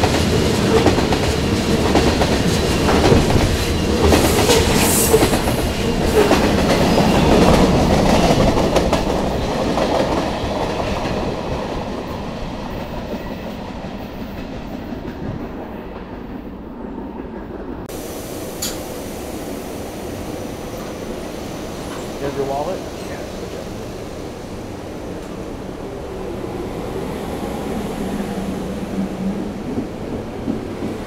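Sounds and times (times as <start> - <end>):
freight train wheels clacking: 0.0 - 16.3, 18.5 - 19.0.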